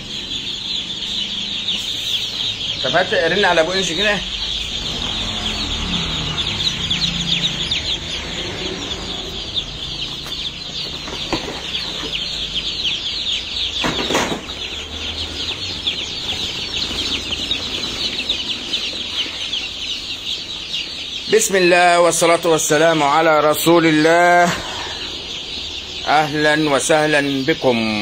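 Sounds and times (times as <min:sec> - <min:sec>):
chicks peeping: 0:00.0 - 0:28.0.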